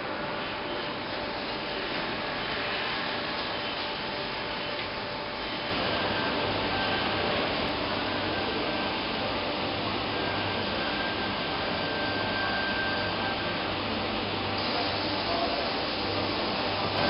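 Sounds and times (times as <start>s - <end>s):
faint high whine: 0.0s - 17.0s.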